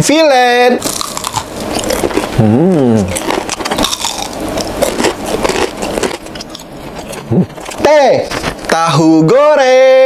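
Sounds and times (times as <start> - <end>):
chewing crunchy fried fish: 0.8 - 8.8
person humming mmm: 2.3 - 3.4, 7.2 - 7.6.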